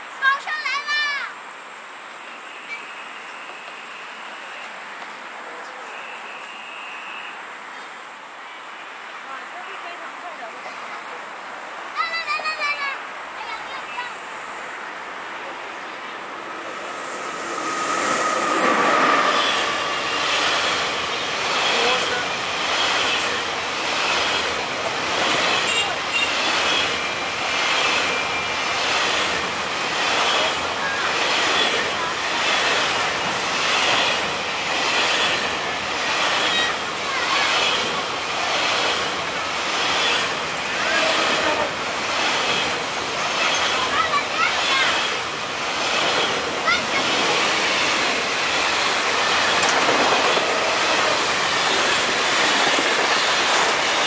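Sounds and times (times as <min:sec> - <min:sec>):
electric locomotive rushing past: 0:12.5 - 0:54.0
train wheels clattering over rails: 0:15.8 - 0:54.0.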